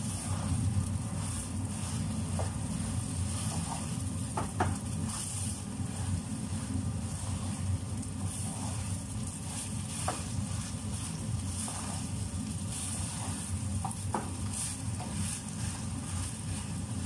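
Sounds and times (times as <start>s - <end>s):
food sizzling in pot: 0.0s - 17.0s
steady low hum: 0.0s - 17.0s
wooden spatula knocking pot: 3.6s - 4.9s, 13.8s - 15.2s.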